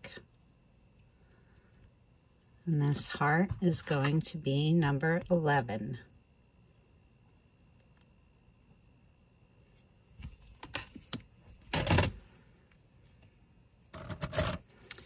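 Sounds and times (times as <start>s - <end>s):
jewelry pieces clinking in box: 14.0s - 15.0s
metal jewelry clicking: 14.2s - 15.0s.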